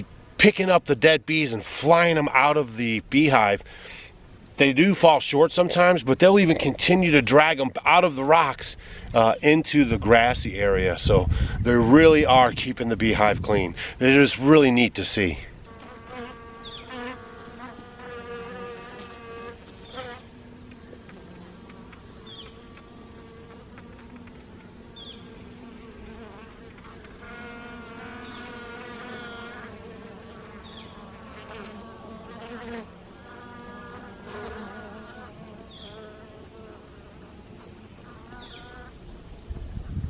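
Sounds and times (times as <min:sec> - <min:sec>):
honeybees buzzing: 0:14.0 - 0:40.0.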